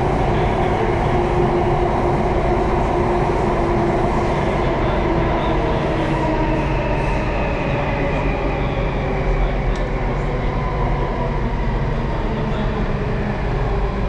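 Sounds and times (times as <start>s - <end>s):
constant train whine: 0.0s - 14.0s
train rumble in tunnel: 0.0s - 14.0s.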